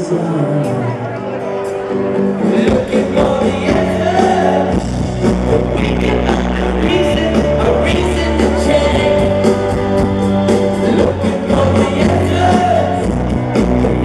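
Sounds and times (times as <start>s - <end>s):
vocals: 0.0s - 1.4s, 2.1s - 14.0s
live rock band playing: 0.0s - 14.0s.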